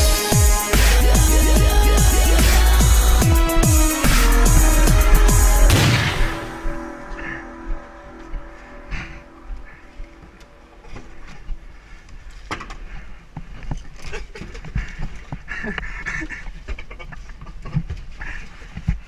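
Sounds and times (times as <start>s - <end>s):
breathing close to microphone: 14.6s - 16.6s, 18.1s - 19.0s.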